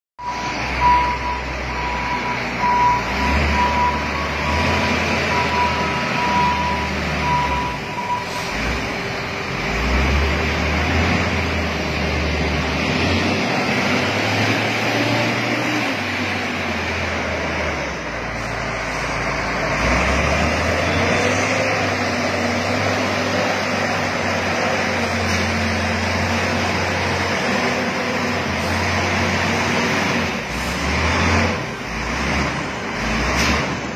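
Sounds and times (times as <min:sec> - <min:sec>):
reversing alarm beeping: 0:00.2 - 0:09.2
diesel engine working: 0:00.2 - 0:33.9.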